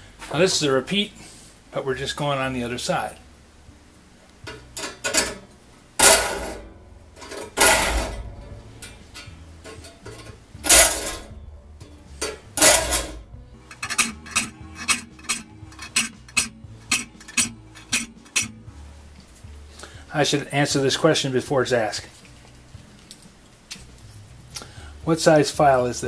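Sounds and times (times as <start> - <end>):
file rasping on saw teeth: 13.7 - 18.5.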